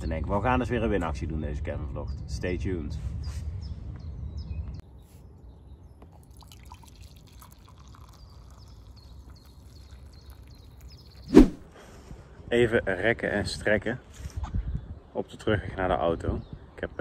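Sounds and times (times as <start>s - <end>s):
coffee pouring into mug: 6.1s - 11.3s
high-pitched drips and trickles: 6.1s - 11.3s.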